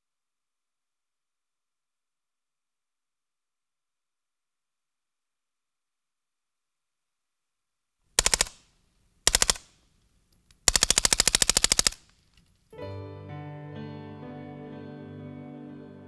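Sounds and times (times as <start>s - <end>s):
music: 12.7s - 16.0s.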